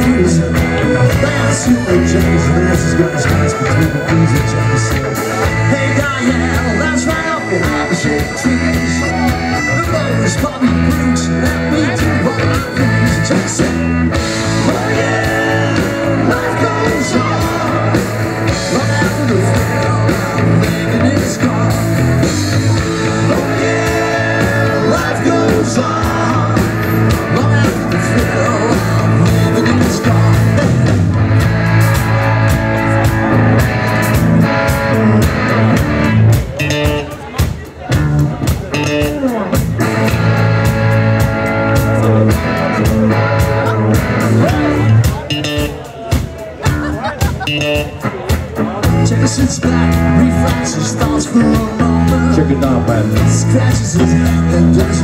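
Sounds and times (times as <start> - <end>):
man singing into a microphone: 0.0 - 31.1, 34.7 - 36.2, 41.7 - 45.9, 48.6 - 55.0
rock band playing: 0.0 - 55.0.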